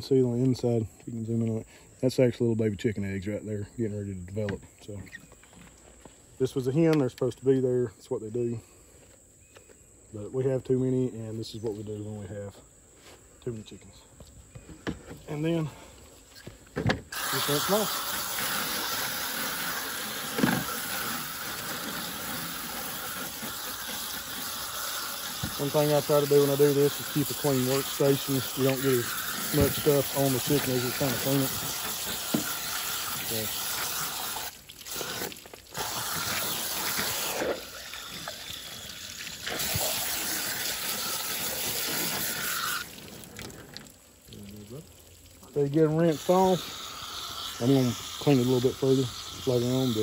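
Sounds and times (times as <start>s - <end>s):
water spraying from hose: 17.1s - 50.0s.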